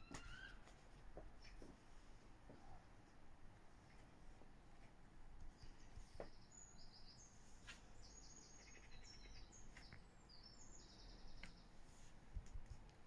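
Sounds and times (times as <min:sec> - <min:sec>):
faint high bird chirps: 0:00.0 - 0:00.6, 0:05.5 - 0:11.8.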